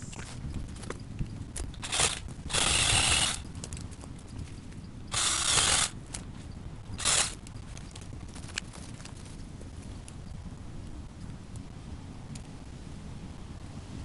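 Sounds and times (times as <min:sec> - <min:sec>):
reciprocating saw cutting branches: 0:01.8 - 0:03.5, 0:05.1 - 0:06.0, 0:07.0 - 0:07.4.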